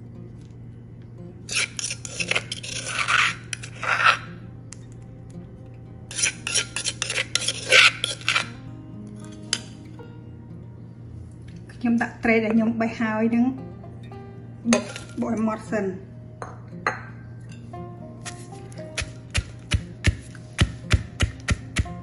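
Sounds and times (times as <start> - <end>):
metal spoon scraping a mortar: 1.5 - 4.4, 6.1 - 8.6, 14.7 - 15.2.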